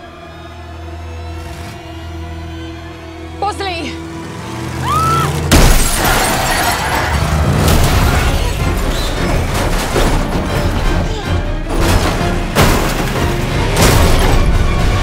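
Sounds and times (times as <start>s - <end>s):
dramatic film score: 0.0s - 15.0s
glass shattering: 5.5s - 10.8s, 11.7s - 14.6s
car crash impact: 5.5s - 10.9s, 11.7s - 15.0s
loud crashing noise: 11.7s - 15.0s.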